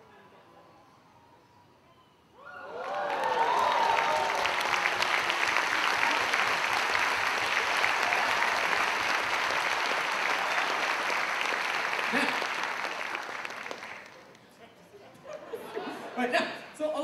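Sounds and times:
audience voices rising: 0:02.4 - 0:14.4
audience clapping: 0:02.7 - 0:14.5.

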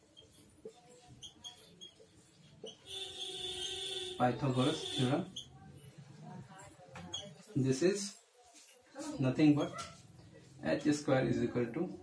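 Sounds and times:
marker squeaking on board: 0:00.0 - 0:06.0, 0:06.9 - 0:07.5.

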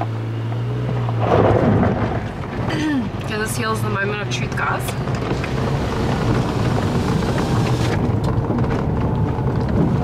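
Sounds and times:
car engine pulling uphill: 0:00.0 - 0:10.0
tyres rumbling over gravel: 0:00.9 - 0:02.8, 0:04.5 - 0:10.0.

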